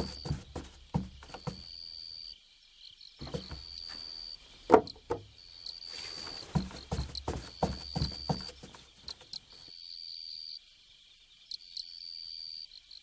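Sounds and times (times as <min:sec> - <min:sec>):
soft knocks: 0:00.0 - 0:01.7, 0:03.2 - 0:04.0, 0:04.7 - 0:05.3, 0:06.4 - 0:09.2.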